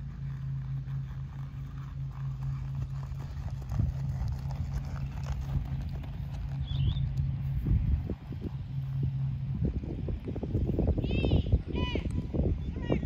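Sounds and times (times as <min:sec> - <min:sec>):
hoofbeats on sand: 0:00.0 - 0:10.7
steady low hum: 0:00.0 - 0:13.0.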